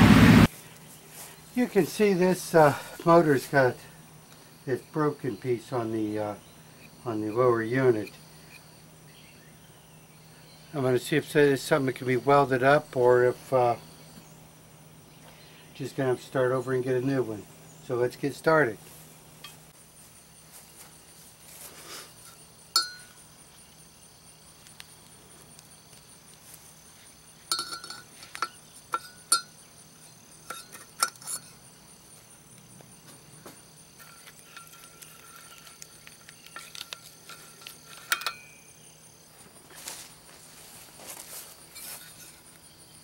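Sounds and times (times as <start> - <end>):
high-pitched insect sound: 0.5 - 43.0
metal tools clinking: 22.2 - 23.2, 27.5 - 29.6, 30.4 - 31.6, 34.0 - 38.6, 41.7 - 42.5.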